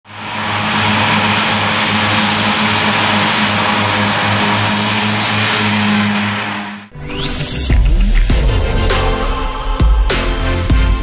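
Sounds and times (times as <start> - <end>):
mower engine drone: 0.0 - 7.7
grass rushing noise: 0.1 - 6.9.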